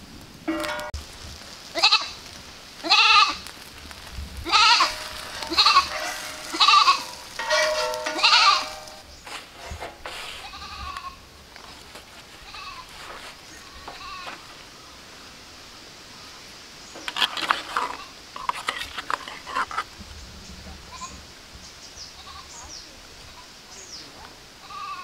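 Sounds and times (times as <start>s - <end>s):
goat bleating: 1.8s - 2.2s, 2.8s - 3.4s, 4.4s - 8.9s, 10.4s - 11.2s, 12.4s - 12.9s, 13.6s - 14.4s, 24.6s - 25.0s.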